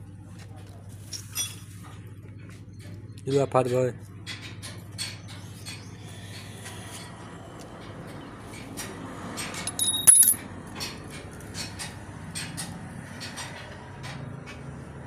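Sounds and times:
metal tools clinking: 9.6 - 10.4
ringing metallic clink: 9.6 - 10.4.

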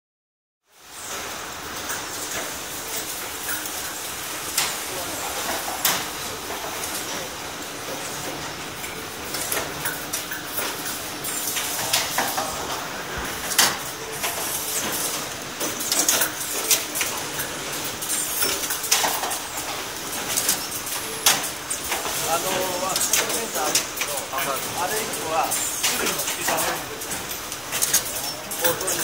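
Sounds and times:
factory machinery running: 0.8 - 29.0
sharp clicks and clatters: 13.5 - 29.0.

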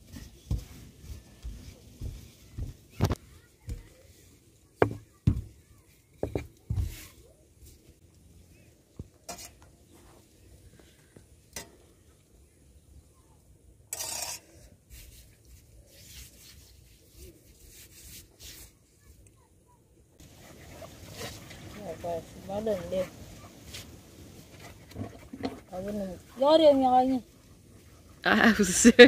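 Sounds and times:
hand rubbing oil on dough: 14.9 - 19.2.

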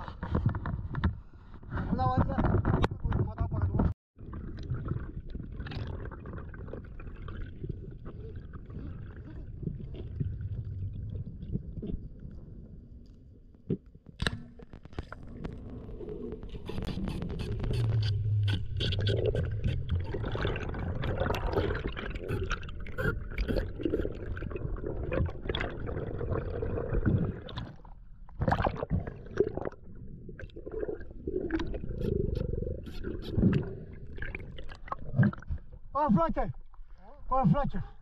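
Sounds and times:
underwater water rushing: 15.0 - 35.6.

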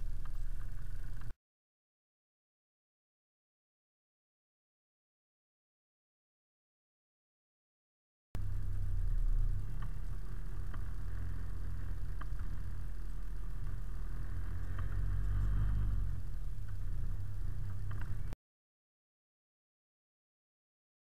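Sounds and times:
faint clicks: 0.0 - 1.3, 9.5 - 18.4
truck engine low rumble: 0.0 - 1.3, 8.4 - 18.4.

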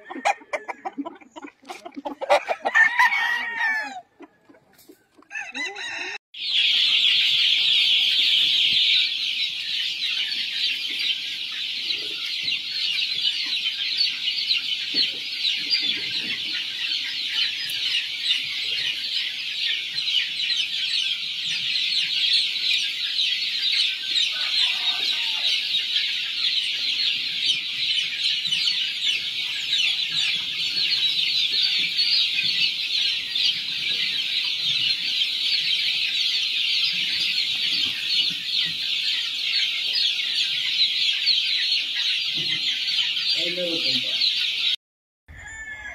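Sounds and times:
chicks peeping: 0.0 - 2.6, 6.4 - 45.9.

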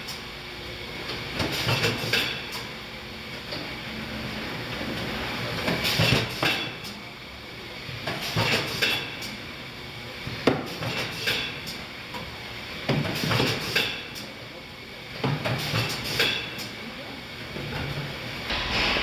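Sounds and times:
machine hum: 18.4 - 19.0
metallic clanks and clacks: 18.5 - 19.0.

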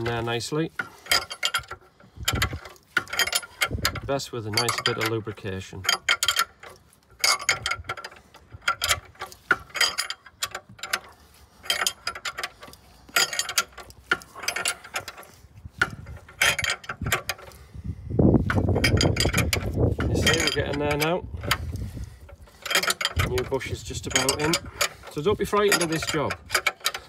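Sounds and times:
hand ratchet clicking: 0.0 - 5.2, 5.8 - 17.8, 18.4 - 27.0
rumbling scrape: 7.2 - 27.0.

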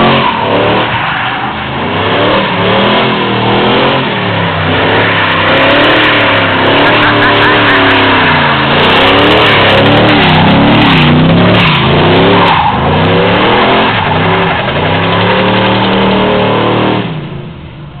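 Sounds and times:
tyres screeching: 0.0 - 17.0
car engine revving: 0.0 - 18.0.

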